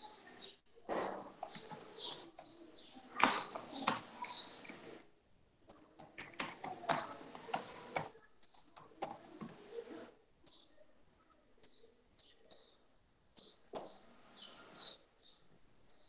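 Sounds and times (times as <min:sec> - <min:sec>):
faint irregular clicks: 0:05.6 - 0:09.9.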